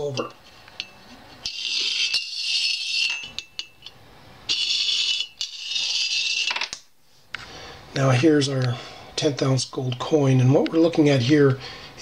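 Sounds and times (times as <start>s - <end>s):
coin sliding down metal channel: 1.4s - 3.3s, 4.5s - 6.8s.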